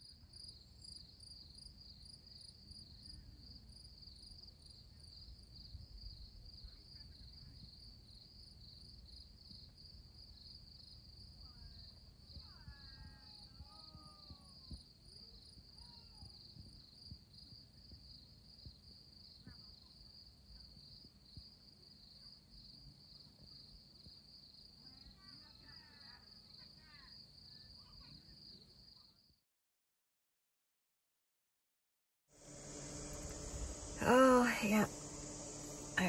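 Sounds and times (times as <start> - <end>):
crickets chirping: 0.0 - 19.4, 32.4 - 36.0.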